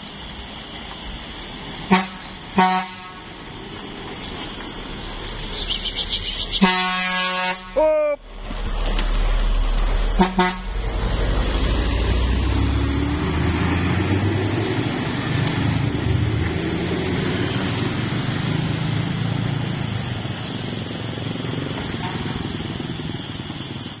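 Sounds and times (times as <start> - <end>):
bus diesel engine: 0.0 - 24.0
motorcycles passing: 3.2 - 24.0.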